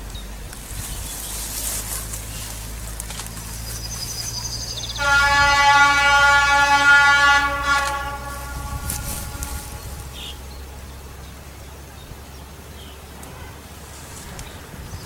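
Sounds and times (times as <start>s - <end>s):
railbus low rumble: 0.0s - 15.0s
train horn blast: 4.9s - 10.5s, 13.2s - 13.7s.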